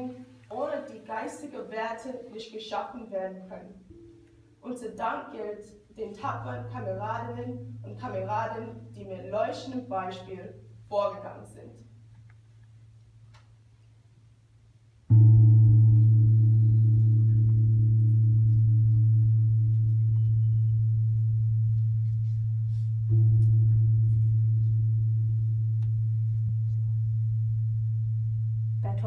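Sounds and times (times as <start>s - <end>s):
deep ringing tone: 3.8s - 4.6s, 15.1s - 29.0s.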